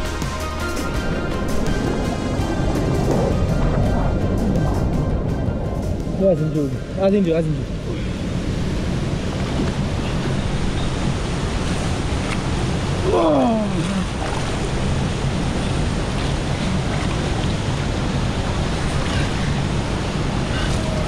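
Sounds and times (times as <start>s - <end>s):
river water rushing: 6.2s - 21.0s.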